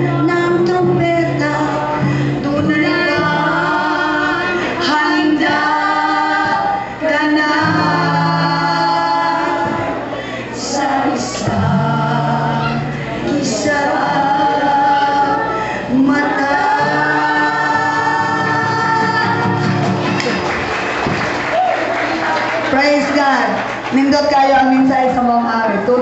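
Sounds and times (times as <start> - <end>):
choir singing: 0.0 - 20.1.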